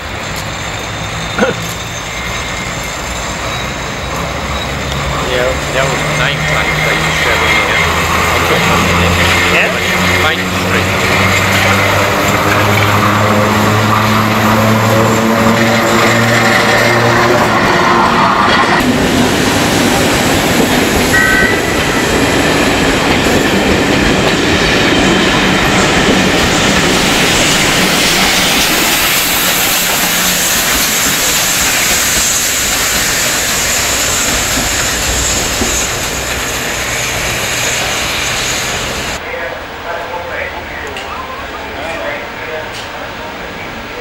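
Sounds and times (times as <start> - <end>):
train wheels on rails: 0.0 - 39.2
steam locomotive hiss: 25.3 - 39.2.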